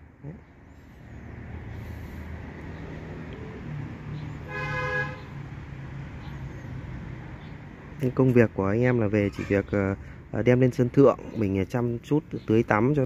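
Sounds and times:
vehicle horn toot: 4.5 - 5.3.

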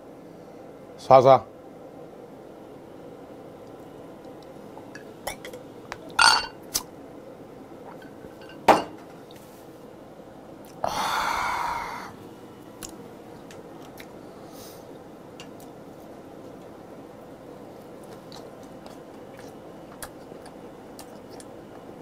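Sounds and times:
breathy exhale: 10.8 - 12.2, 14.4 - 14.9.

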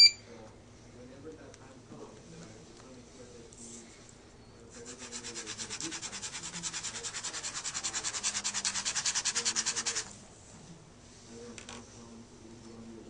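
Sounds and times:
pen scribbling on paper: 4.8 - 10.1.

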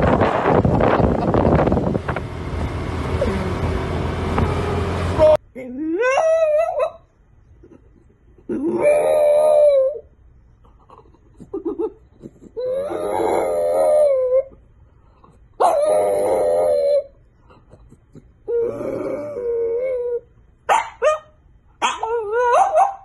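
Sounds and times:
dog howling: 8.5 - 10.1, 12.6 - 14.6, 15.6 - 17.2, 18.5 - 20.3, 21.9 - 23.0.

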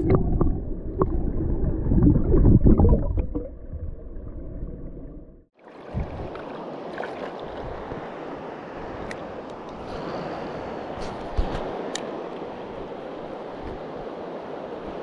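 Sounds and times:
muffled water gurgling and sloshing: 0.0 - 10.2
stream rushing: 5.6 - 15.0.

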